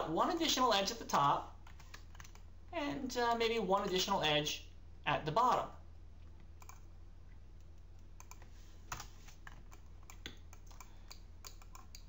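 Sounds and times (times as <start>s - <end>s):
steady low hum: 0.0s - 12.0s
mouse and keyboard clicks: 8.2s - 12.0s.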